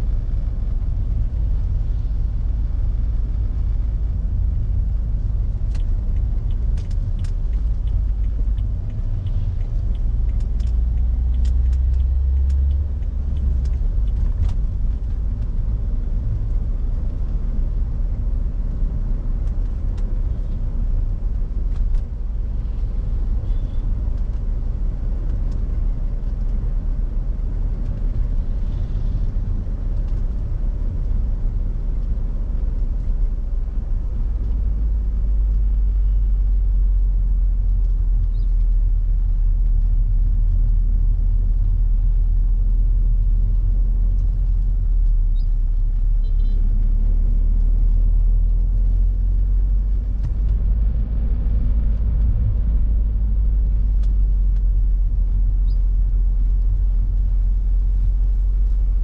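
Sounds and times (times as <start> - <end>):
car engine rumble: 0.0 - 59.0
road noise: 0.0 - 59.0.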